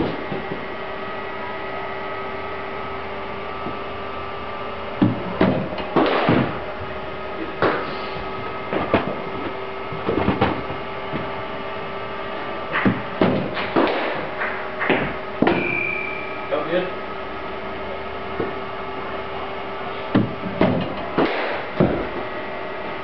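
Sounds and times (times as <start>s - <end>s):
steady hum: 0.0s - 23.0s
ball hitting netting and floor: 5.0s - 6.7s, 7.4s - 8.0s, 12.7s - 15.9s, 20.1s - 22.3s
cricket bat striking ball: 21.1s - 22.0s.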